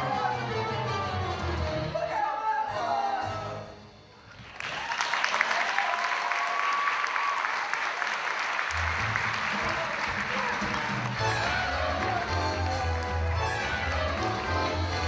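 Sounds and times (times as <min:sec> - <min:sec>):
show music: 0:00.0 - 0:04.7, 0:08.6 - 0:15.0
audience applause: 0:04.4 - 0:15.0.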